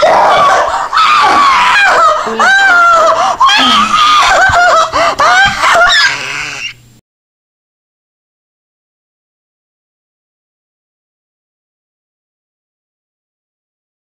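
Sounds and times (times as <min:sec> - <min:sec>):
people screaming: 0:00.0 - 0:06.8.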